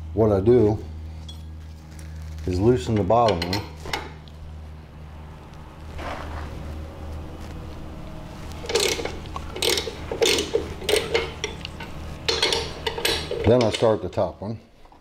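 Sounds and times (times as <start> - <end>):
ratchet wrench clicking: 8.6 - 13.9.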